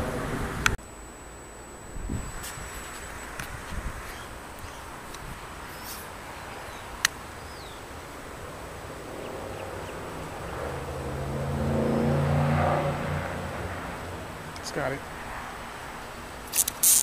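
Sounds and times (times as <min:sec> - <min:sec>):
outdoor background hiss: 0:00.0 - 0:17.0
vehicle engine approaching: 0:08.5 - 0:14.5.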